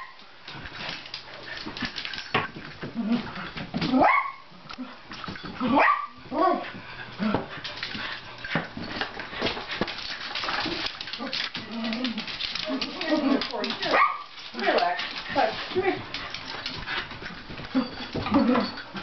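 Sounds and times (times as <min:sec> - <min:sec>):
paws scrabbling on floor: 0:00.2 - 0:04.0, 0:04.8 - 0:19.0
dog barking and yipping: 0:04.0 - 0:04.5, 0:05.7 - 0:06.6, 0:13.2 - 0:14.9.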